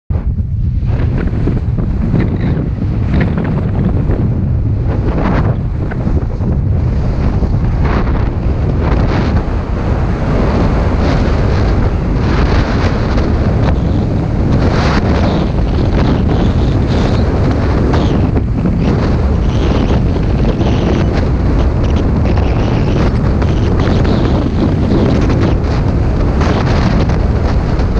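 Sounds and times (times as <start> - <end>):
wind buffeting microphone: 0.1 - 27.9.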